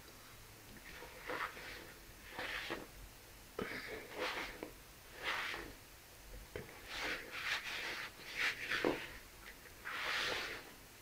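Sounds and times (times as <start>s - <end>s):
hand scraping mixture in bowl: 0.8s - 3.0s, 3.6s - 5.8s, 6.6s - 9.2s, 9.8s - 10.8s.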